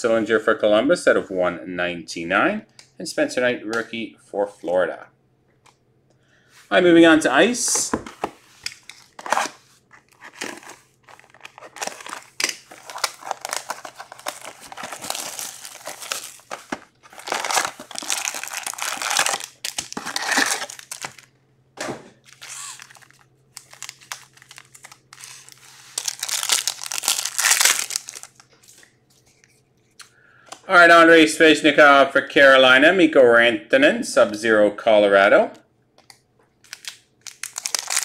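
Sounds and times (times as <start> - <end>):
foil wrappers crinkling and tearing: 9.0 - 21.3, 22.2 - 28.9, 36.6 - 38.0.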